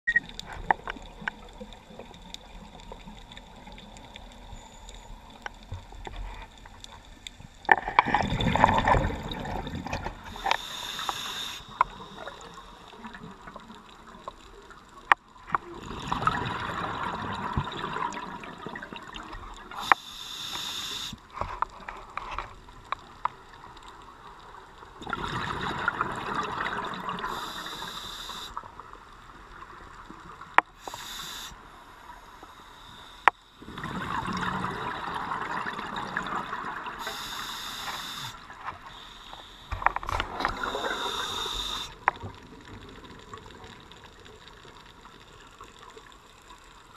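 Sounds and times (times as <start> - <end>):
exhaled bubbles underwater: 8.0 - 10.7, 11.7 - 19.9, 24.9 - 28.0, 33.6 - 37.5, 40.0 - 46.1
regulator hiss: 10.2 - 13.0, 19.8 - 21.2, 27.3 - 28.6, 30.7 - 33.4, 37.0 - 39.8, 40.5 - 42.0.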